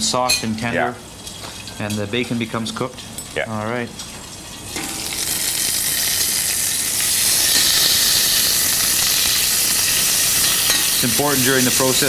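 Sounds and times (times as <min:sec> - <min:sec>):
meat sizzling in a pan: 0:03.3 - 0:12.0.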